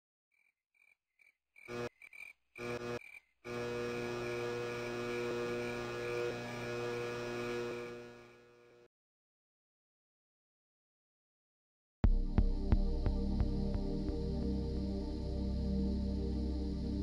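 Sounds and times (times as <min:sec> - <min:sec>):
neon sign electrical buzz: 0:01.7 - 0:01.9, 0:02.6 - 0:08.9
electrical hum: 0:02.6 - 0:08.8.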